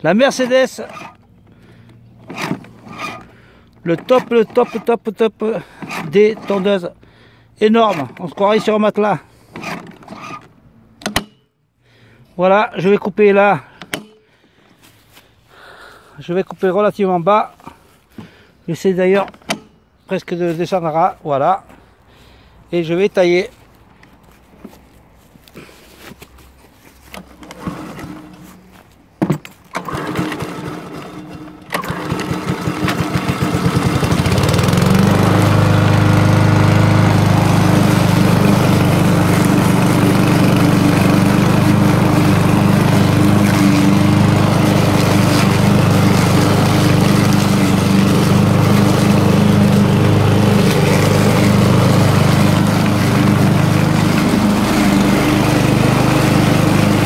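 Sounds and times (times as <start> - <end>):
mower engine starting: 0.1 - 10.6, 27.0 - 57.0
lawn mower engine running: 0.4 - 11.2, 27.0 - 57.0.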